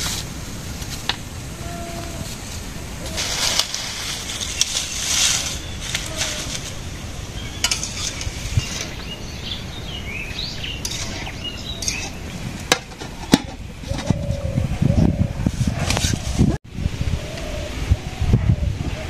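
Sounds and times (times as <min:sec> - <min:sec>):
bird chirps: 0:04.5 - 0:12.3
utensils clinking against steel bowls: 0:07.5 - 0:09.1, 0:10.7 - 0:14.0.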